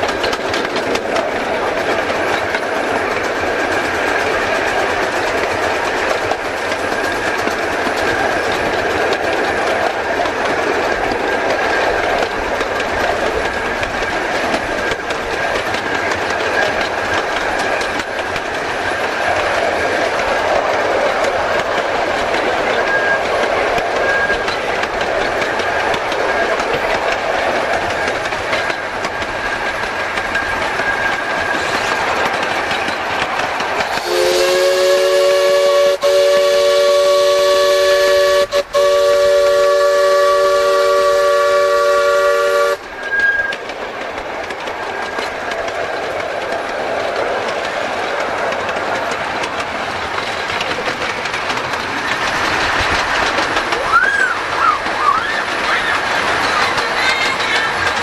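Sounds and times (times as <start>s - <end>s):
small steam locomotive running: 0.0s - 58.0s
steam whistle chord: 34.0s - 43.4s.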